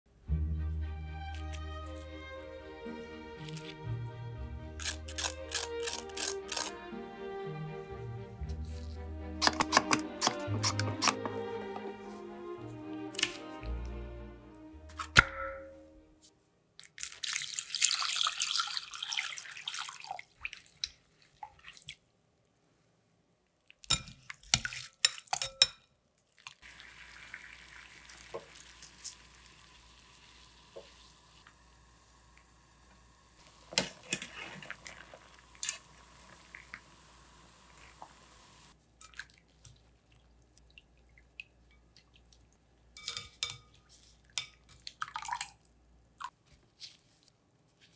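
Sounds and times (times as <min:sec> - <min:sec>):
water running into glass bowl: 0:26.6 - 0:31.5
chopsticks stirring in water: 0:33.7 - 0:35.8.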